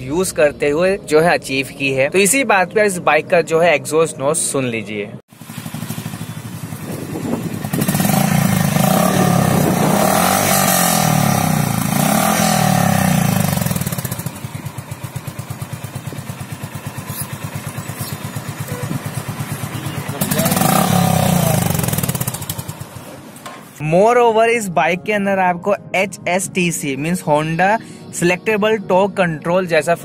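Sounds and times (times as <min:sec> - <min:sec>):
motorcycle engine revving and idling: 0:05.3 - 0:23.4.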